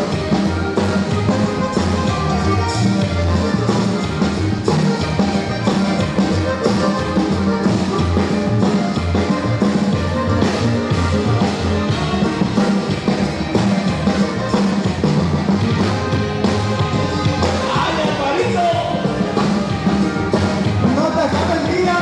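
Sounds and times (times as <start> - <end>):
upbeat dance music: 10.8 - 22.0.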